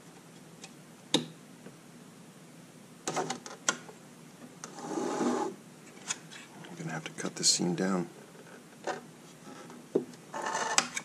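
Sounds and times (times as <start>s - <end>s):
housing scraping on mat: 4.7s - 5.6s.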